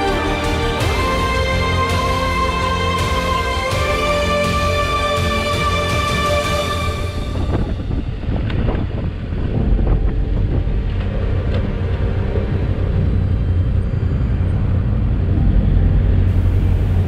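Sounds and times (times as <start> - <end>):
wind buffeting microphone: 6.9 - 17.0.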